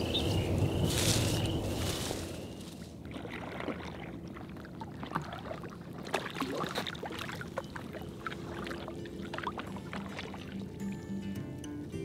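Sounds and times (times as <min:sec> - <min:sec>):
water trickling off paddle blades: 0:01.0 - 0:11.0
kayak paddle dipping into water: 0:02.9 - 0:10.8
small splashes: 0:02.9 - 0:10.8.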